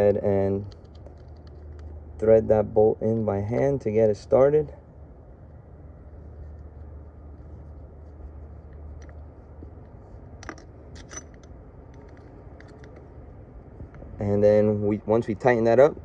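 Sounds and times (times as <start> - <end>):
bolt clicking and scraping on metal: 0.0 - 2.0, 8.7 - 13.2
low hum: 0.0 - 16.0.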